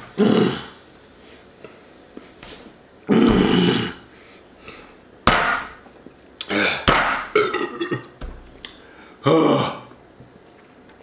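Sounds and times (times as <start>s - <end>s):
man belching loudly: 3.1s - 4.0s, 7.4s - 8.1s.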